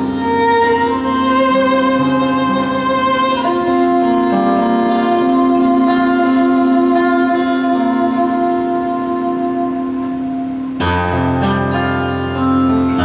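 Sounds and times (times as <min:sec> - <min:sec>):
violin and guitar duet: 0:00.0 - 0:13.0.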